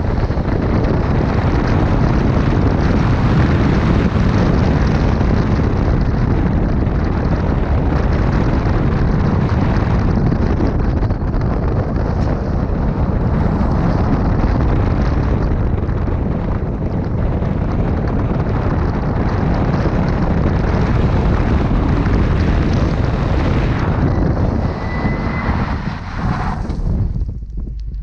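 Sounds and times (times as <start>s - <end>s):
wind rushing over microphone: 0.0s - 28.0s
car engine: 8.0s - 27.3s.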